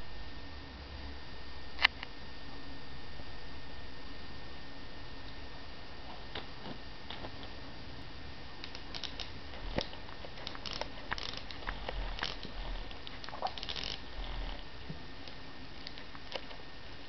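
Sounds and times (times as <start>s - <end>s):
dog chewing a plush toy: 8.7s - 14.7s.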